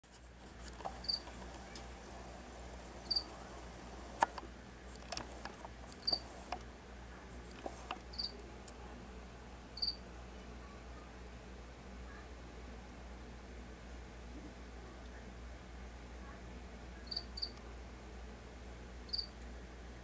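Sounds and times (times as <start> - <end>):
faint high whine: 0.1 - 6.6
small clicks and taps: 4.1 - 6.7.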